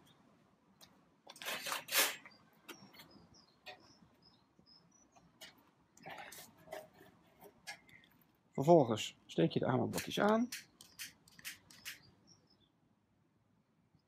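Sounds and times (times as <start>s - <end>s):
rustling scrape: 1.3s - 2.4s
high bird chirps: 2.2s - 5.5s, 10.5s - 12.7s.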